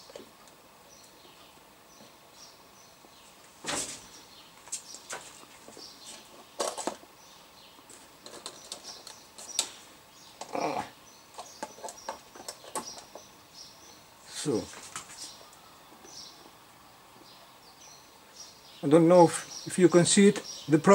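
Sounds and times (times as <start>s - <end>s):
clicks and knocks of handling: 7.9s - 9.8s.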